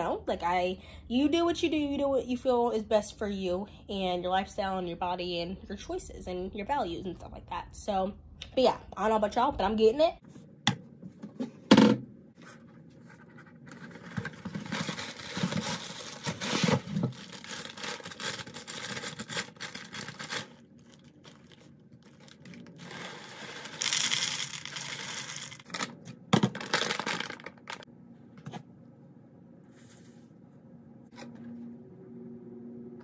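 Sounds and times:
plastic cereal bag crinkling: 14.0s - 27.9s
cereal pouring into a bowl: 22.5s - 25.7s.

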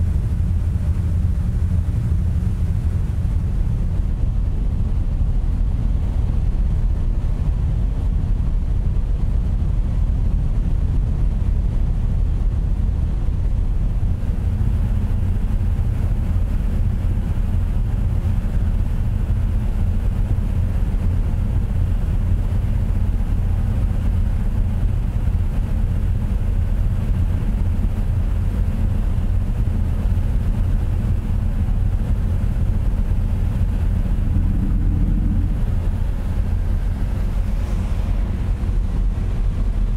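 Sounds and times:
ferry diesel engines droning: 30.5s - 39.9s.

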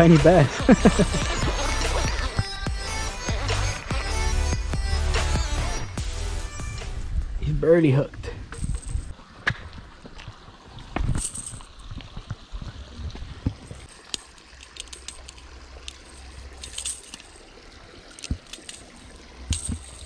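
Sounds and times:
metallic clicks of pliers and hooks: 13.9s - 17.4s, 18.1s - 20.0s.

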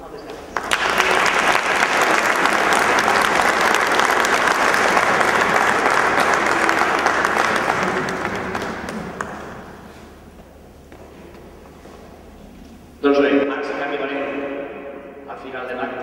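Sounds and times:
audience applauding: 0.4s - 10.2s.

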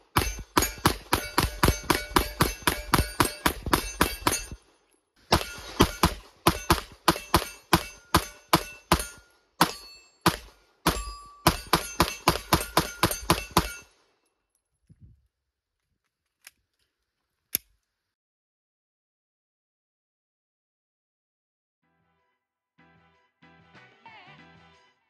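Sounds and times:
rapid pistol fire: 0.1s - 4.4s.

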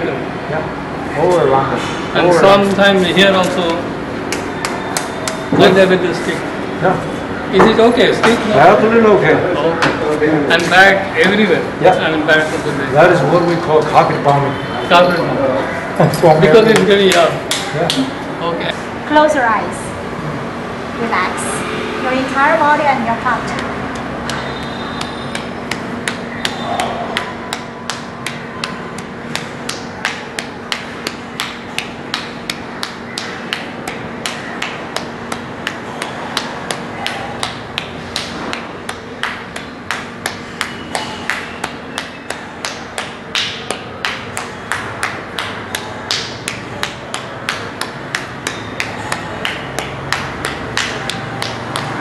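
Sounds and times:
palm slapping bald head: 3.6s - 5.6s, 23.5s - 52.0s.

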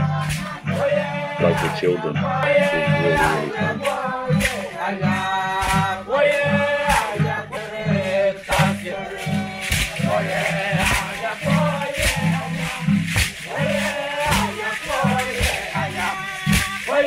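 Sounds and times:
men singing a chant together: 0.0s - 17.0s
steady beat: 1.4s - 4.0s.

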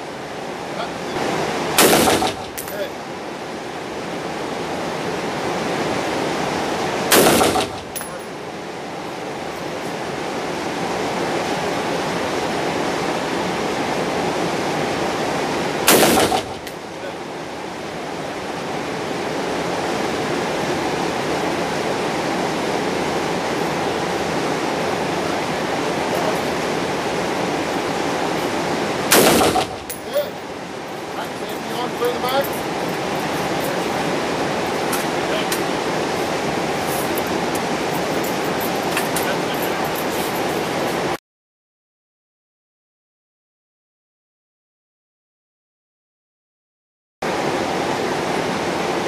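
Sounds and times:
steady rushing noise: 0.0s - 41.2s
rifle shots echoing: 1.8s - 2.8s, 7.1s - 8.2s, 15.9s - 16.7s, 29.1s - 30.1s.

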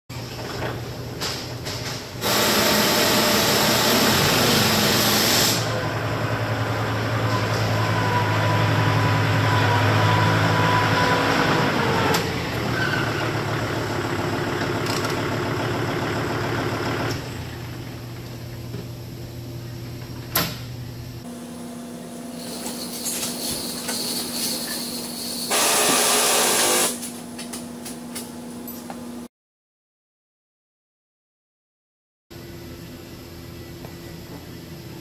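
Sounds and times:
tractor engine running: 8.0s - 17.7s.

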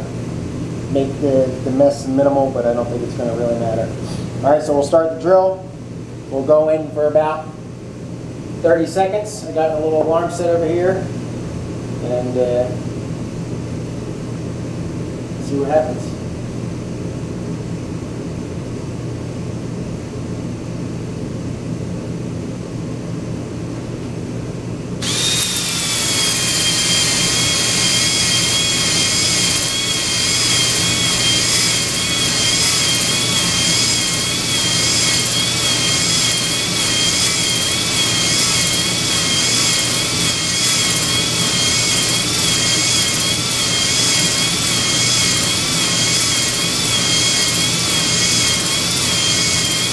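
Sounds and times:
electric drill whining: 25.0s - 49.9s.

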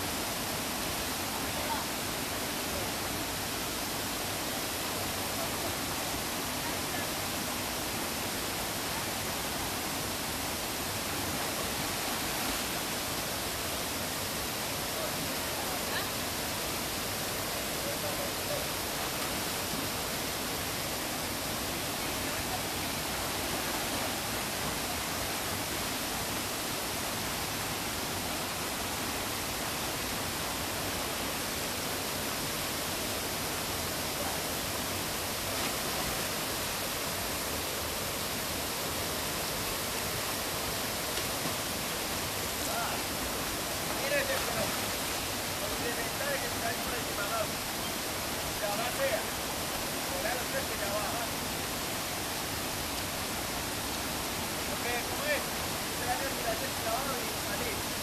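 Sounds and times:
waterfall pouring into a pool: 0.0s - 58.0s.

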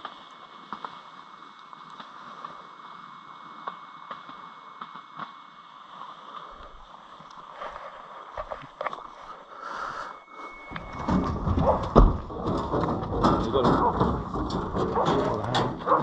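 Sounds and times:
faint ticks and rustles: 0.0s - 9.8s
outdoor hum and hiss: 0.0s - 16.0s.

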